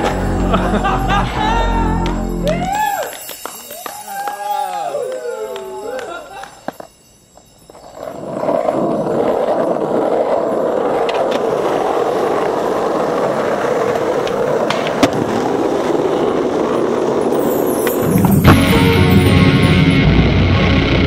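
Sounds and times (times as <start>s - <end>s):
skateboard wheels rolling on pavement: 0.0s - 21.0s.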